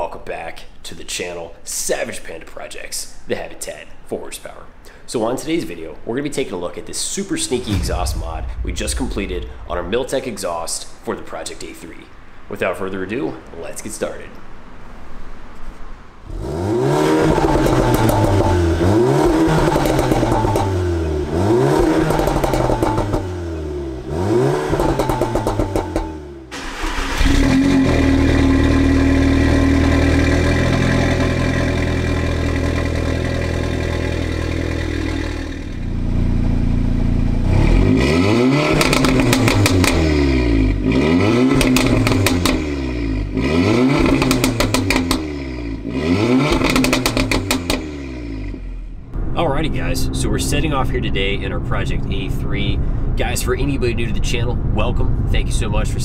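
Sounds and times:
exhaust crackling pops: 0:07.4 - 0:11.6, 0:17.2 - 0:23.7, 0:24.6 - 0:35.9, 0:38.7 - 0:40.1, 0:41.4 - 0:42.7, 0:44.0 - 0:45.3, 0:46.4 - 0:48.0
car engine revving: 0:16.2 - 0:53.0.

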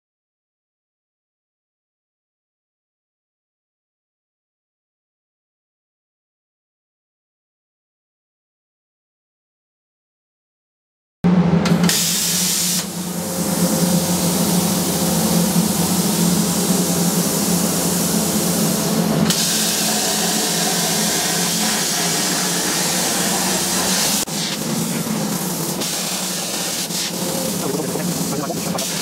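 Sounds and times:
low hum: 0:11.3 - 0:26.5
plasma cutter hissing: 0:11.7 - 0:29.0.

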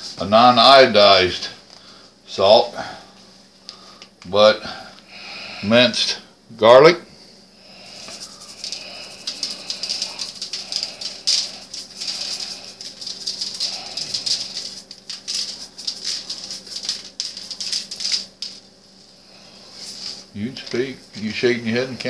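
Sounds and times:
spice shaker rattling: 0:07.8 - 0:18.8, 0:19.6 - 0:20.8.

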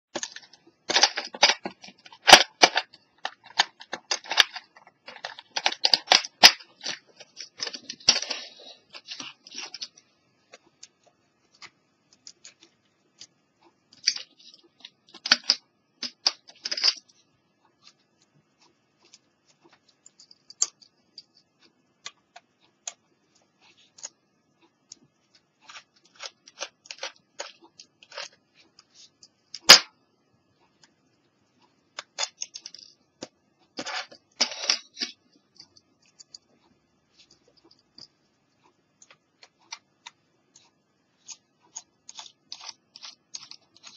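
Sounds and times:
plastic clicks and rattles: 0:00.2 - 0:17.2, 0:25.7 - 0:28.5.

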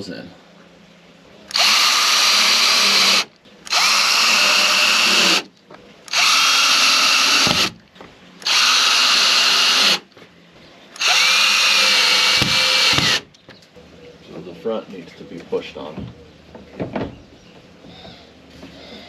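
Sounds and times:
power drill driving screws: 0:01.5 - 0:05.5, 0:06.1 - 0:07.7, 0:08.4 - 0:10.0, 0:11.0 - 0:13.2.

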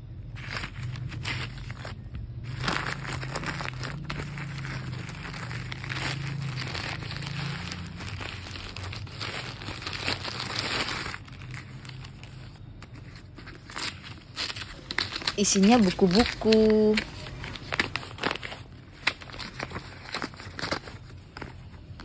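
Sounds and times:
plastic bag crinkling and tearing: 0:00.0 - 0:22.0.

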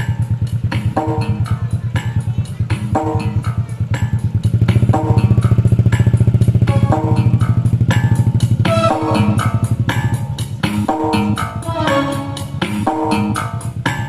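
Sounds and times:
loud dance music with bass: 0:11.6 - 0:13.0.

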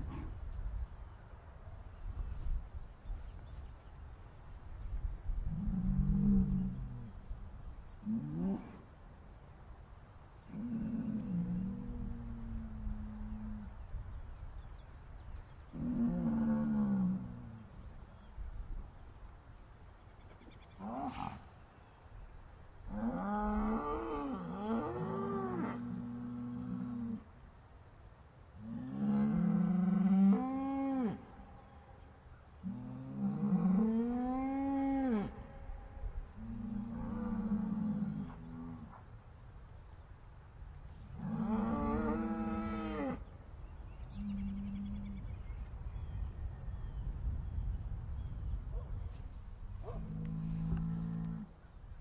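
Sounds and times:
cows mooing in distress: 0:41.2 - 0:43.2, 0:49.9 - 0:51.5.

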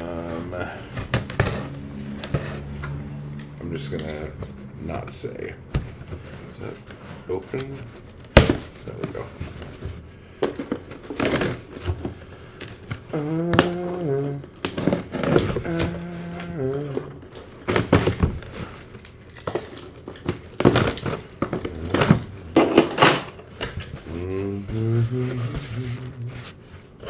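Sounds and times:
packaging rustling and crinkling: 0:05.9 - 0:24.2
man humming: 0:13.0 - 0:17.3, 0:24.0 - 0:26.5.

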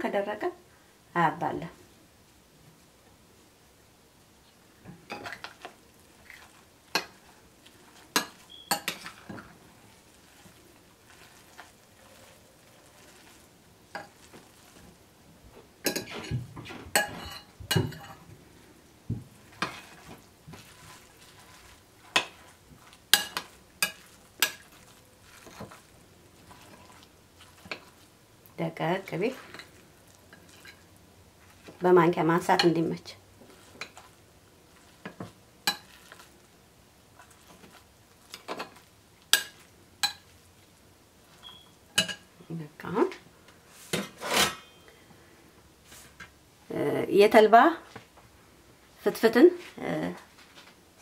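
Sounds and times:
spoon clinking in ceramic dish: 0:08.2 - 0:09.1.

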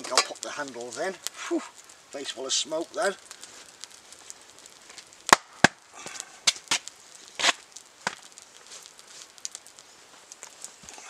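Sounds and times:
wood fire popping and cracking: 0:00.0 - 0:11.0.

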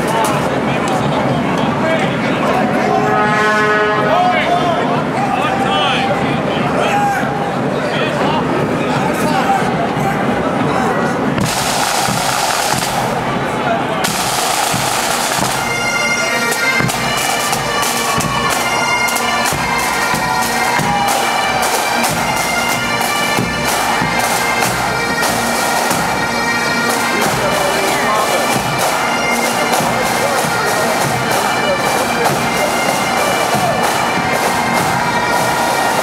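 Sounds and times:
regular drum beat: 0:11.4 - 0:13.4, 0:14.0 - 0:36.0
bagpipes playing a march: 0:11.4 - 0:36.0.

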